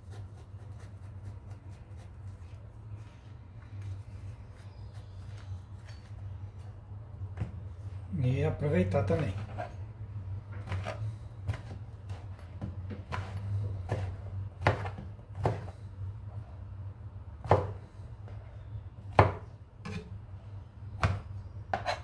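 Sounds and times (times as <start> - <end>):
low steady hum: 0.0 - 22.0
knife chopping on cutting board: 10.6 - 15.7, 17.4 - 17.8, 19.1 - 20.0, 21.0 - 22.0.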